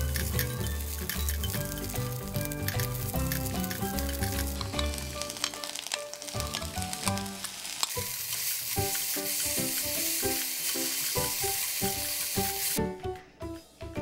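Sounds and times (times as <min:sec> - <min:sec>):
eggplant sizzling in frying pan: 0:00.0 - 0:12.8
stirring utensils clicking: 0:00.0 - 0:12.8
background music: 0:00.0 - 0:14.0.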